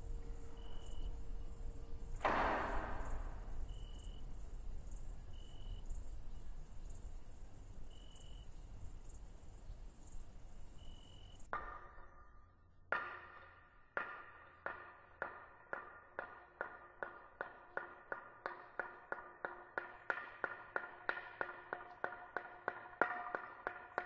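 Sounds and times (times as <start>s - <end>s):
high clear chirp: 0.0s - 2.2s
crickets chirring: 0.0s - 11.5s.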